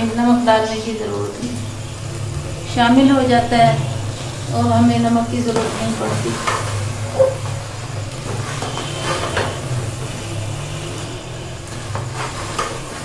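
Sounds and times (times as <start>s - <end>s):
food frying in a pot: 0.0s - 13.0s
steady low hum: 0.0s - 13.0s
metal spoon scraping a pot: 8.3s - 13.0s.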